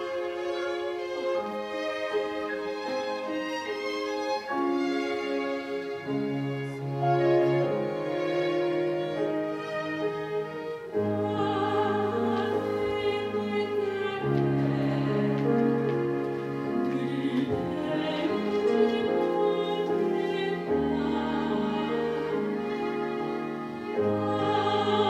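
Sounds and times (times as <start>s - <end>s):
string ensemble playing chords: 0.0s - 25.0s
women singing operatically: 11.0s - 16.0s, 16.6s - 23.0s, 24.0s - 25.0s.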